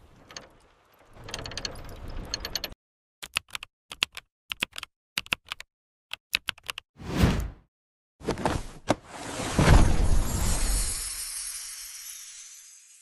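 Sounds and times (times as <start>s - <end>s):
keyboard keys clicking: 2.3s - 6.8s.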